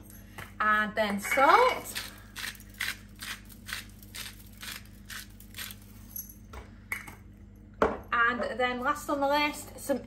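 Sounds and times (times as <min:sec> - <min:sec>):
salt grinder grinding: 0:01.9 - 0:06.0.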